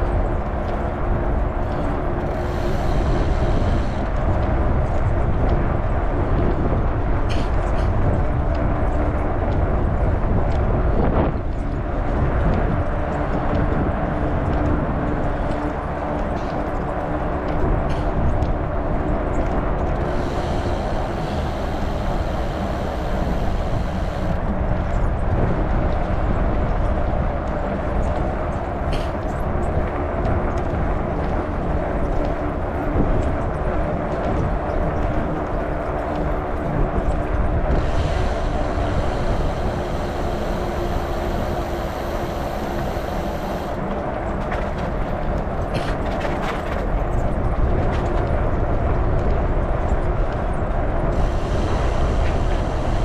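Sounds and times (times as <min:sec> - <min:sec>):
wind rumbling on microphone: 0:00.0 - 0:53.0.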